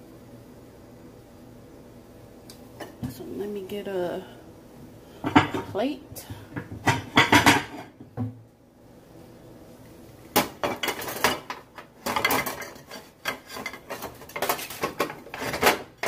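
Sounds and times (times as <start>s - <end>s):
plate set down: 5.2s - 5.7s, 6.6s - 8.4s
dishes clattering: 5.2s - 5.8s, 6.6s - 8.3s, 10.4s - 16.0s.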